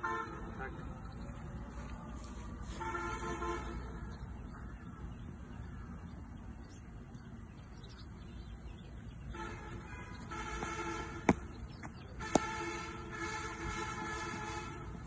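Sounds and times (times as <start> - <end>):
steady droning tone: 0.0 - 15.0
cricket ball hitting bat: 10.6 - 11.5.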